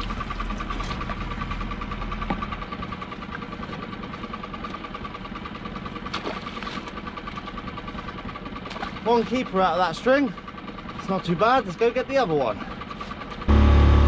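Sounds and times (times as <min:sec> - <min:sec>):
boat engine idling: 0:00.0 - 0:14.0
splash in water: 0:06.1 - 0:06.9.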